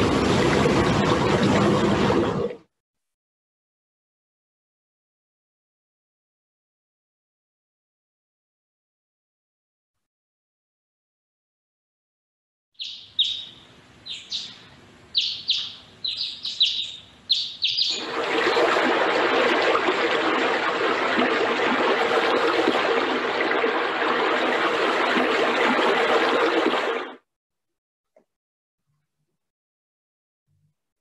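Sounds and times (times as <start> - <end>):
fountain water rushing: 0.0 - 2.5, 17.7 - 27.1
bird twittering: 12.8 - 18.0.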